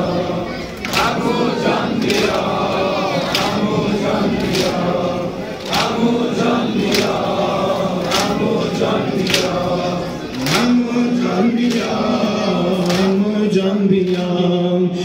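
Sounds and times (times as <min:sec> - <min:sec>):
men chanting in unison: 0:00.0 - 0:15.0
chest-beating slaps: 0:10.3 - 0:10.8.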